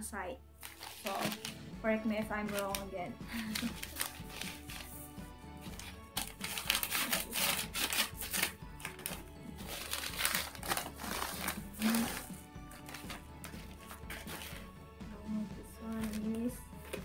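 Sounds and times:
background music: 0.0s - 17.0s
paper mailer crinkling: 0.6s - 1.6s, 2.4s - 14.7s
scissors cutting paper: 0.6s - 1.6s, 2.4s - 14.7s, 15.8s - 17.0s.

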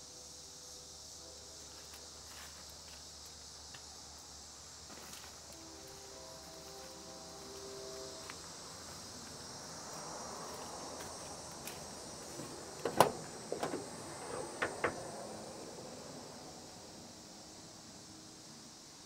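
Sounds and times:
insects buzzing: 0.0s - 19.0s
door hinge clicks: 12.8s - 15.1s
truck door latch clack: 12.8s - 15.2s.

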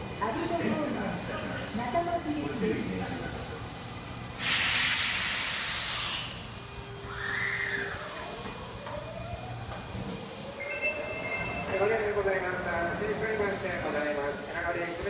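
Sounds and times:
train whine: 0.0s - 15.0s
compressed air hiss: 2.8s - 8.8s, 9.6s - 10.6s, 13.0s - 15.0s
high steady tones: 10.4s - 14.3s.

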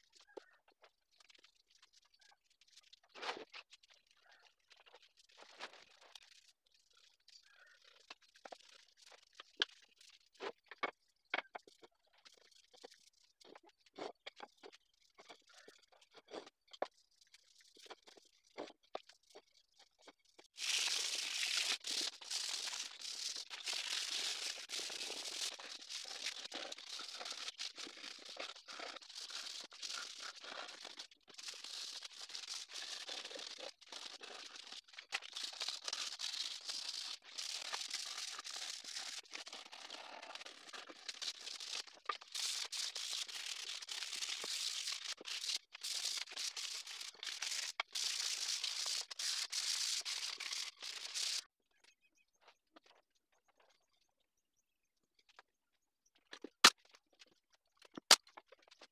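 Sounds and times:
sandpaper rubbing on wood: 35.5s - 51.4s.

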